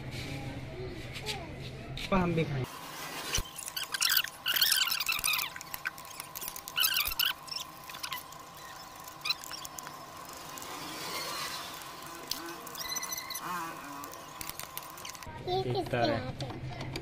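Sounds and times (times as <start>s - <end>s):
metal squeaks: 3.3s - 15.3s.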